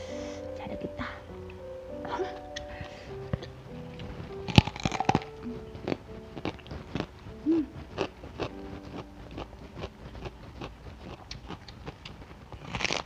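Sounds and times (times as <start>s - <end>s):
crunchy chewing: 3.3s - 13.0s.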